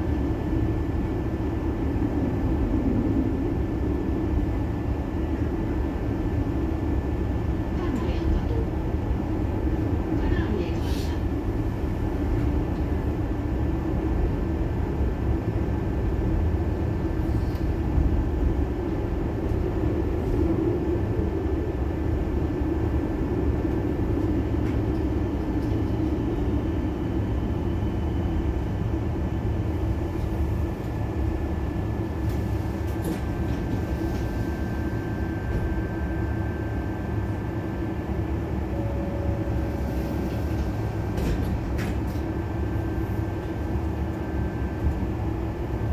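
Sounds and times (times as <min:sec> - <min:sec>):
tram wheels rumbling on track: 0:00.0 - 0:45.9.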